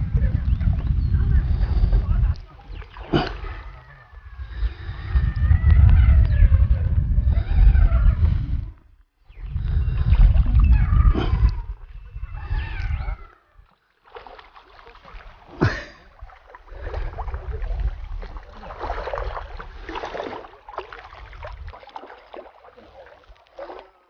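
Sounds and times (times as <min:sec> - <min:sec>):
fish splashing in water: 0:14.0 - 0:24.0.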